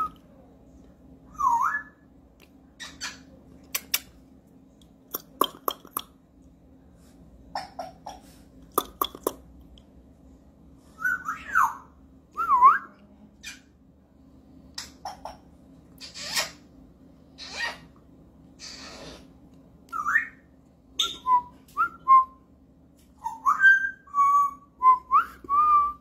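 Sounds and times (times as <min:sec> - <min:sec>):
parrot clicking: 0:03.6 - 0:04.2, 0:05.1 - 0:06.1, 0:08.7 - 0:09.4
parrot whistling: 0:19.9 - 0:20.4, 0:23.2 - 0:26.0.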